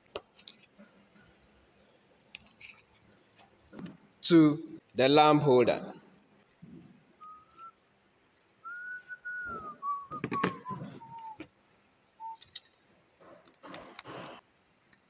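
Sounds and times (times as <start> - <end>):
person whistling softly: 7.2 - 7.8, 8.6 - 11.4, 12.2 - 12.6.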